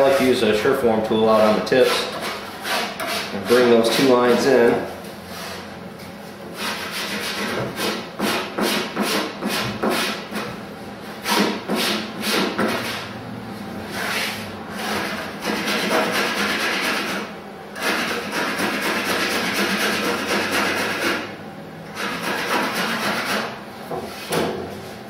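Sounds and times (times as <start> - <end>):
rasp scraping wood: 1.8 - 4.5, 6.6 - 10.5, 13.9 - 21.2, 22.0 - 23.5.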